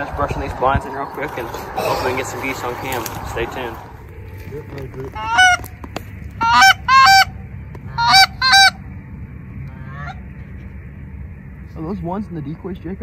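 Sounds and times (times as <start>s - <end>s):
goose honking: 5.0s - 8.8s, 9.7s - 10.2s.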